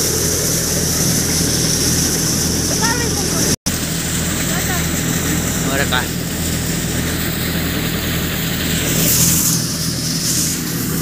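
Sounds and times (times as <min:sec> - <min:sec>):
thresher hissing: 0:00.0 - 0:11.0
tractor diesel engine running: 0:00.0 - 0:11.0
loud high hiss: 0:08.5 - 0:11.0.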